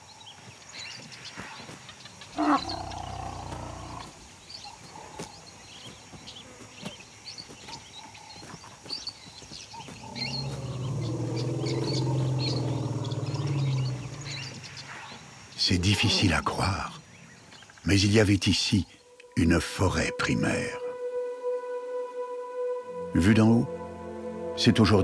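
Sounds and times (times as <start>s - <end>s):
deep animal calls: 2.3s - 4.2s, 9.7s - 17.0s.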